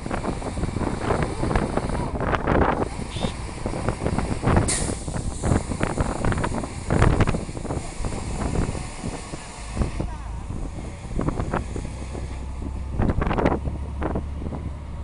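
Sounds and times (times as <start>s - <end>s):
road vehicle rumbling: 0.0s - 15.0s
short sharp hiss: 4.7s - 6.0s.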